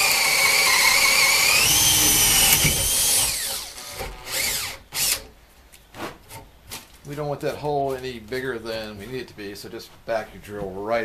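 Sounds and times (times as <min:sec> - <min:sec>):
drill boring into wood: 0:00.0 - 0:05.3.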